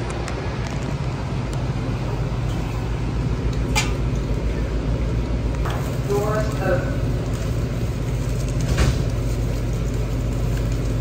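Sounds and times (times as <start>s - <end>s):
railcar air conditioning hum: 0.0s - 11.0s.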